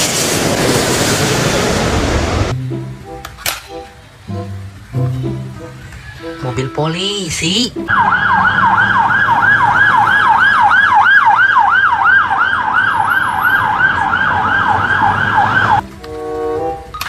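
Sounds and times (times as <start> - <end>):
police siren yelping: 7.9 - 15.8.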